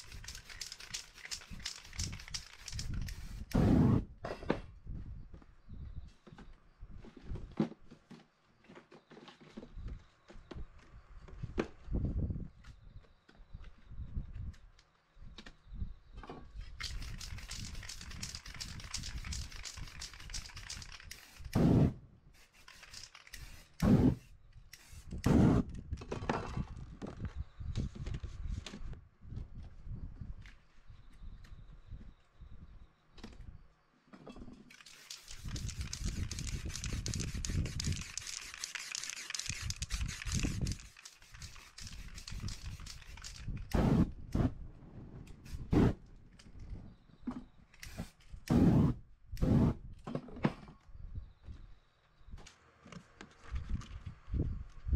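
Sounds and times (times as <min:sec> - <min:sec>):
spray paint can hissing: 0:00.0 - 0:04.0, 0:16.8 - 0:25.6, 0:34.7 - 0:44.0, 0:45.4 - 0:45.9, 0:47.8 - 0:49.0.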